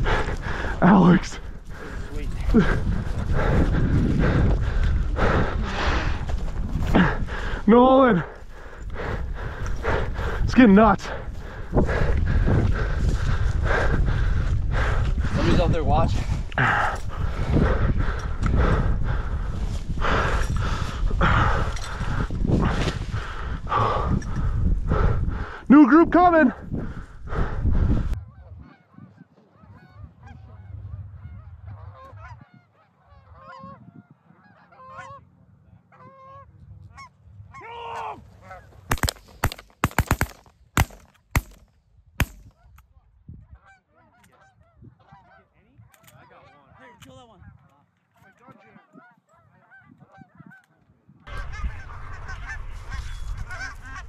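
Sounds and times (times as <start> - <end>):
geese honking: 28.1 - 37.7, 38.3 - 38.8, 43.5 - 54.0
shotgun shots: 38.9 - 41.6.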